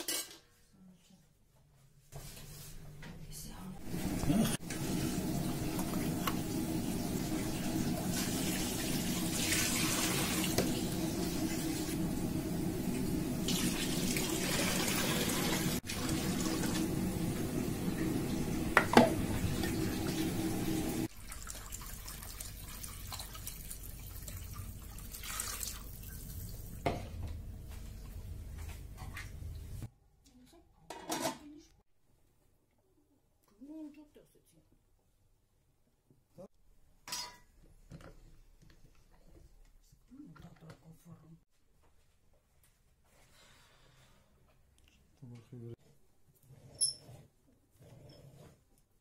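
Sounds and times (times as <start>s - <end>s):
water pouring into a pot: 3.9s - 26.8s.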